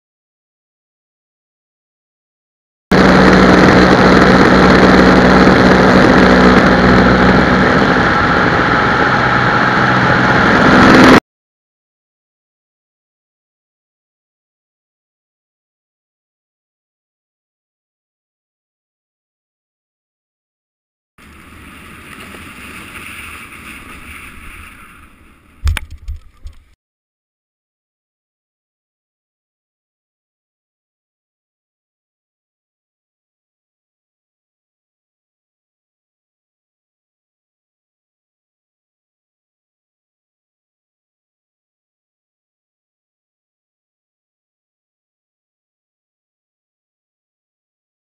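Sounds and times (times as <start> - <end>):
loud wind rush: 2.9 - 11.2
propeller plane engine drone: 2.9 - 11.2, 21.2 - 26.8.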